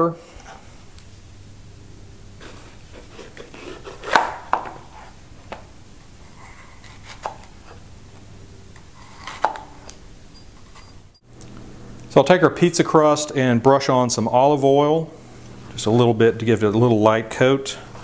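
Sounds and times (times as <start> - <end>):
knife slicing pepper: 2.5 - 5.1, 8.9 - 9.9.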